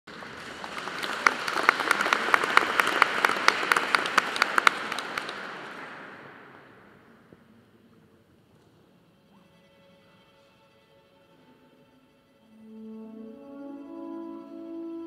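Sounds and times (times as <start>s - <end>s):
audience applauding: 0.0s - 6.9s
hands clapping sharply nearby: 0.1s - 6.9s.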